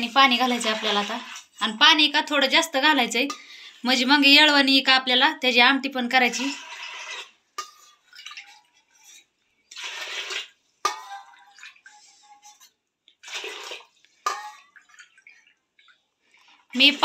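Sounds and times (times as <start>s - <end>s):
water splashing into a pot: 0.0s - 1.8s, 6.2s - 17.0s
water trickling: 6.5s - 16.8s.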